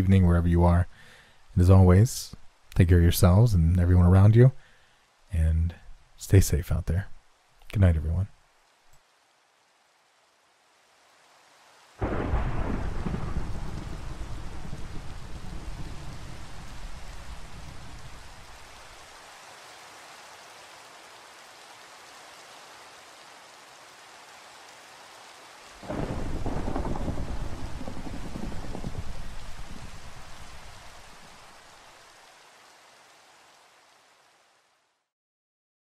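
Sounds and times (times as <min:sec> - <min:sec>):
steady rain: 0:00.0 - 0:35.1
loud thunderclap: 0:12.0 - 0:18.1, 0:25.8 - 0:30.7
thunder rumbling: 0:12.0 - 0:18.6, 0:25.8 - 0:31.5.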